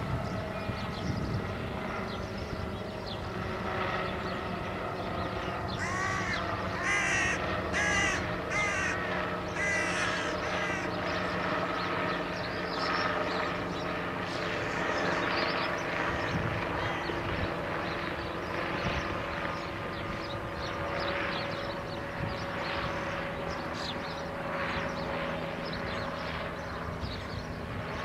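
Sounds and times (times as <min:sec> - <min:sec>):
steady low hum: 0:00.0 - 0:28.0
bird cawing: 0:05.7 - 0:11.7, 0:16.0 - 0:17.4.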